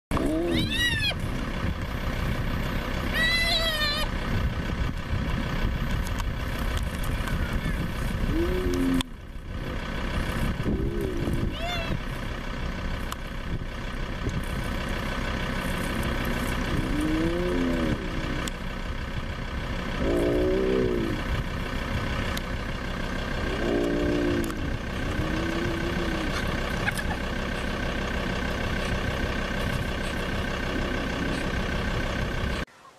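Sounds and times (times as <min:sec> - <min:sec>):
vehicle engine idling: 0:00.1 - 0:32.7
hyena whining: 0:00.2 - 0:01.2, 0:08.3 - 0:09.1, 0:16.7 - 0:18.5, 0:20.0 - 0:21.3, 0:23.4 - 0:27.0.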